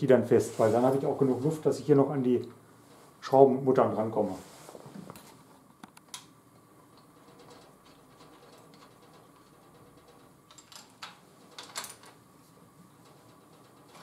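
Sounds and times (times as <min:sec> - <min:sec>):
metal parts clicking: 0:07.0 - 0:12.2.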